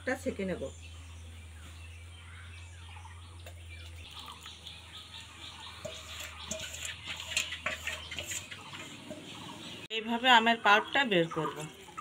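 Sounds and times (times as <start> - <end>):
small birds chirping: 0.0 - 12.0
steel bowl clinking: 5.5 - 9.4.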